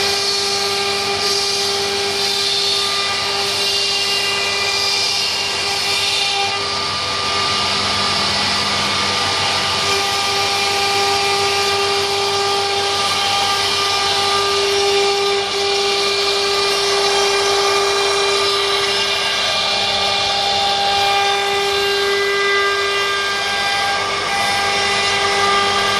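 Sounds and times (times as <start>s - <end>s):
router bit cutting wood: 0.0s - 25.9s
wood router spindle whine: 0.0s - 25.9s.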